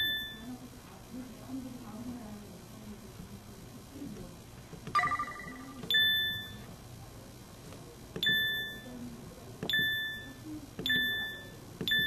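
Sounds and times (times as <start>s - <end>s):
short phone beeps: 5.0s - 6.6s, 8.2s - 8.9s.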